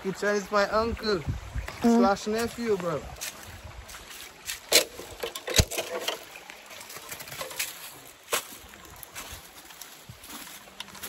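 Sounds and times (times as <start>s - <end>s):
footsteps snapping and rustling: 3.2s - 11.0s.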